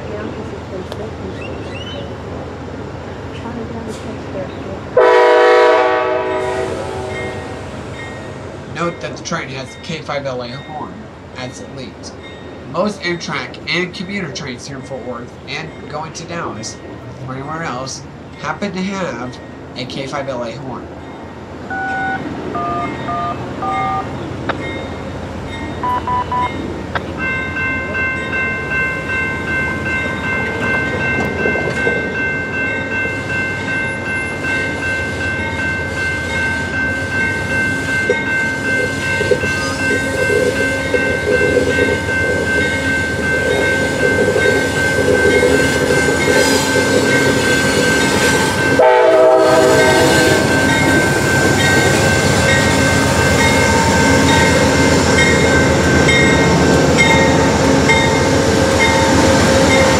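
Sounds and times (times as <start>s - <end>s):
locomotive and wheels rumbling: 0.0s - 59.9s
locomotive air horn chord: 5.0s - 7.7s, 48.5s - 50.7s.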